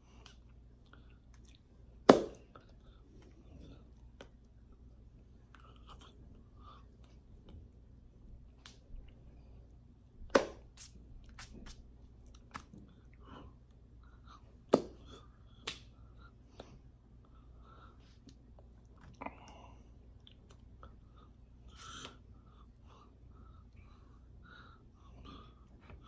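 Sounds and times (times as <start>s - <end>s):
hand slaps: 2.1s - 2.4s, 10.3s - 11.8s, 14.7s - 15.0s, 15.6s - 15.9s.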